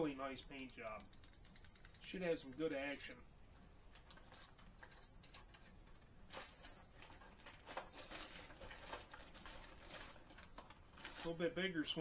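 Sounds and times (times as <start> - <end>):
faint clicks and rustles: 3.9 - 11.4.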